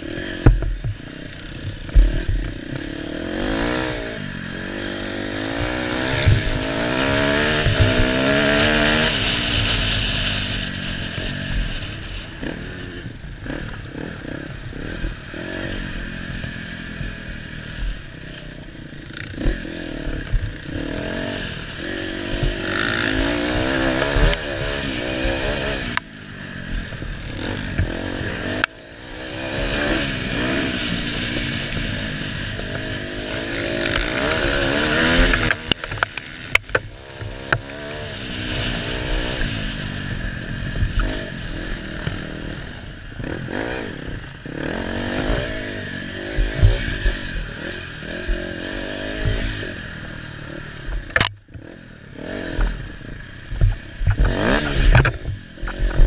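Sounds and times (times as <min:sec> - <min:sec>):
dirt bike engine revving: 0:00.0 - 0:56.0
sharp knocks from bike: 0:51.0 - 0:51.7.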